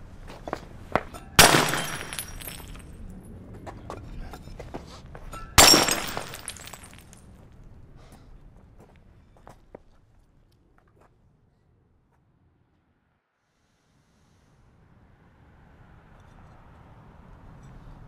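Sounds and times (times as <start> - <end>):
plates smashing: 1.4 - 2.9, 5.6 - 7.2
shards tinkling: 1.4 - 3.1, 5.4 - 7.2.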